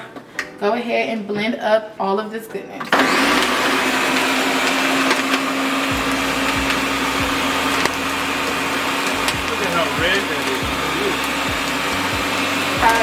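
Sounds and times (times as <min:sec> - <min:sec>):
blender running: 0:02.9 - 0:13.0.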